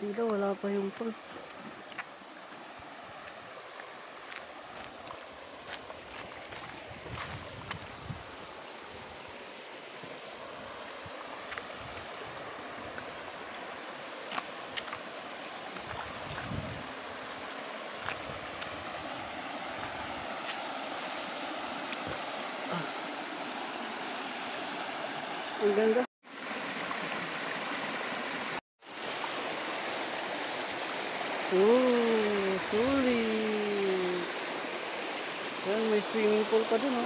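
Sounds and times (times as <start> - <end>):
river water rushing over rocks: 0.0 - 37.0.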